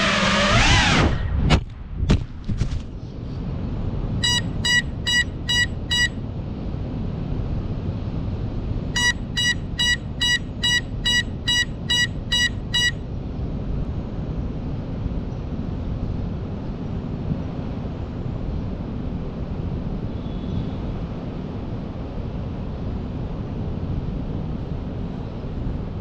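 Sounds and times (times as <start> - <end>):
drone buzzer beeping: 4.2 - 6.1, 9.0 - 13.0.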